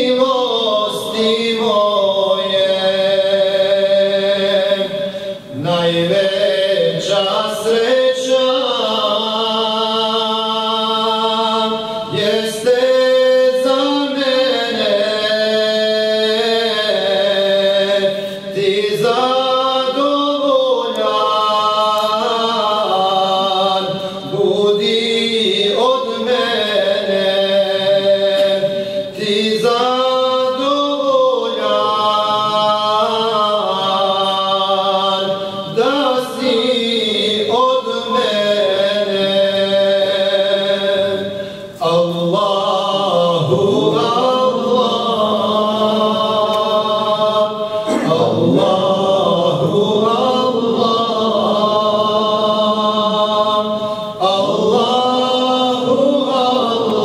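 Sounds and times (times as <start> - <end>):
man singing a hymn: 0.0 - 57.0.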